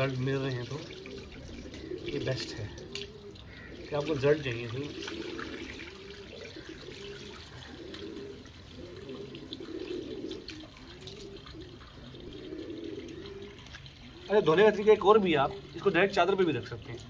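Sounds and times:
water pouring onto concrete: 0.0 - 17.0.

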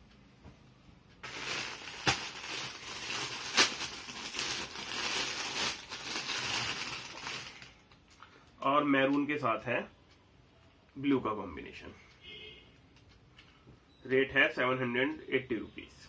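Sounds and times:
plastic packaging crinkling: 1.2 - 8.1
sharp plastic crackles: 1.2 - 8.3.

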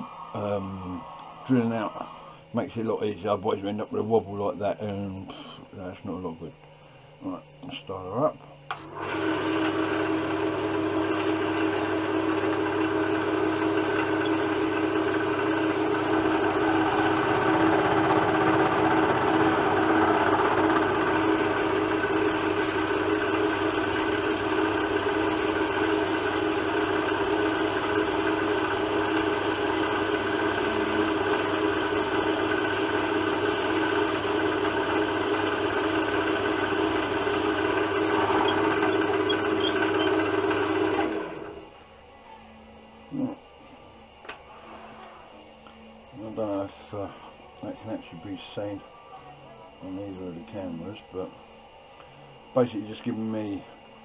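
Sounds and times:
wood lathe motor running: 8.8 - 41.8, 49.7 - 51.4.

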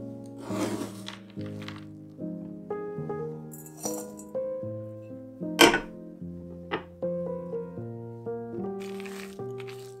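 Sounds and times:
background music with held notes: 0.0 - 10.0
chocolate pieces clattering into bowl: 0.8 - 1.9, 8.8 - 10.0.

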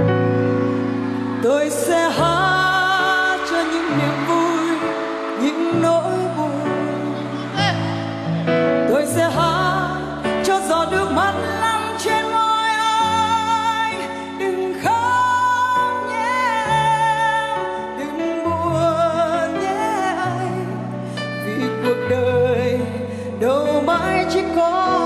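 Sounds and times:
woman singing into a microphone: 1.2 - 25.0.

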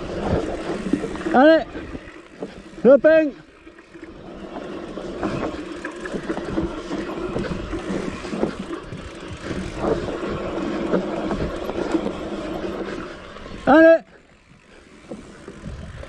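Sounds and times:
bike frame and chain rattling: 0.0 - 16.0
bike tyres on dirt trail: 0.0 - 16.0
wind on microphone: 15.5 - 16.0.

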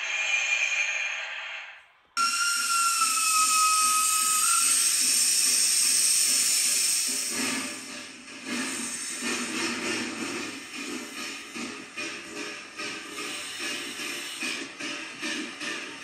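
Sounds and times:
steam hissing: 0.0 - 16.0
locomotive whistle: 2.2 - 7.7.

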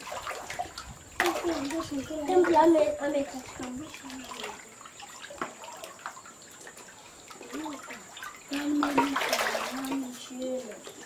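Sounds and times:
otter splashing: 0.0 - 11.0
water sloshing and lapping: 0.0 - 11.0.

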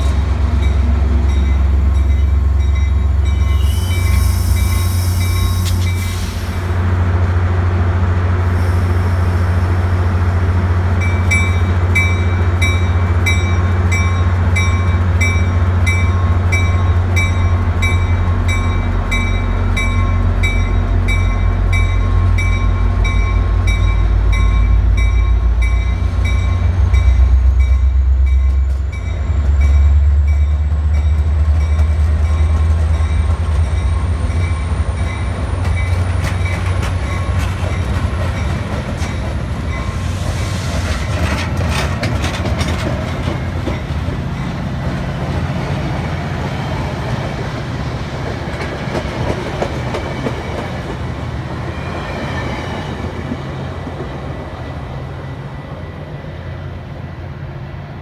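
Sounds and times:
crossing bell ringing: 0.0 - 6.2, 11.0 - 40.1
diesel locomotive engine: 0.0 - 58.0
train wheels clacking over joints: 34.4 - 39.8, 40.7 - 44.2.

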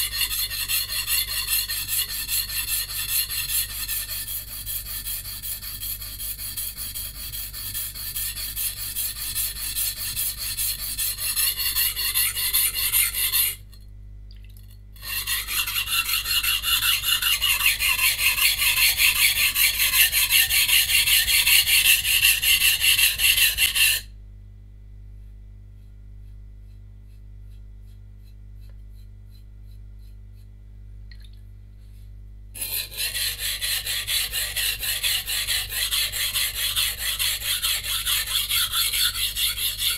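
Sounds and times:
knife scraping on whetstone: 0.0 - 13.6, 15.0 - 24.1, 32.6 - 39.9
faint hum: 12.6 - 15.1, 24.1 - 34.4.

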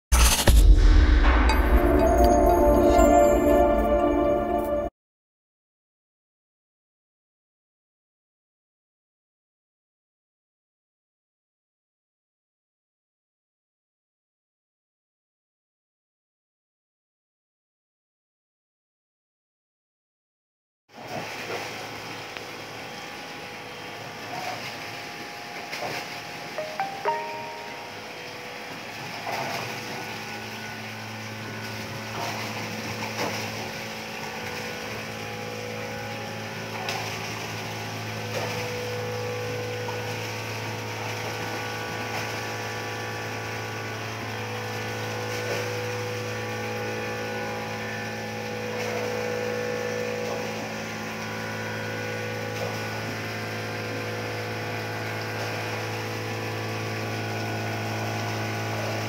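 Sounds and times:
machine hum: 27.4 - 59.0.

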